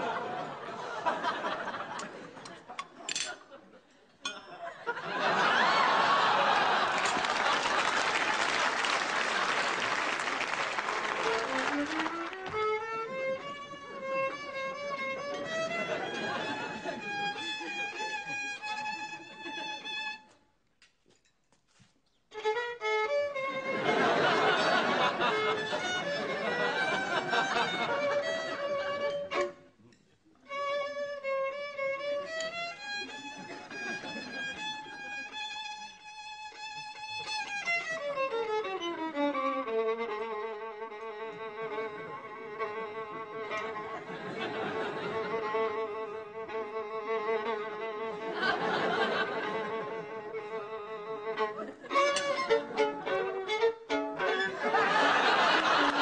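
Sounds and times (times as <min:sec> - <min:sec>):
studio audience noise: 0:04.8 - 0:12.1, 0:23.7 - 0:28.0, 0:54.2 - 0:56.0
solo violin playing: 0:11.1 - 0:20.4, 0:22.3 - 0:29.8, 0:30.4 - 0:56.0.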